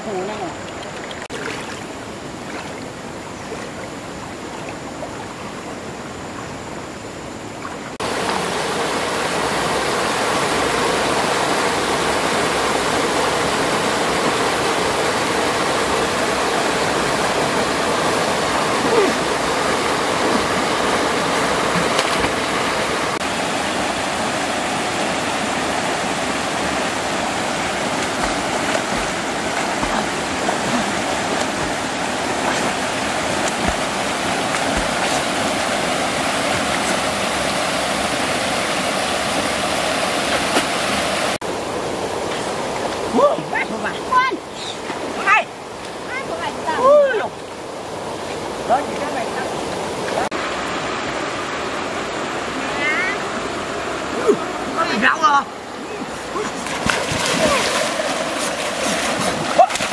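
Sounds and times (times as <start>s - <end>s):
stream rushing: 0.0s - 59.9s.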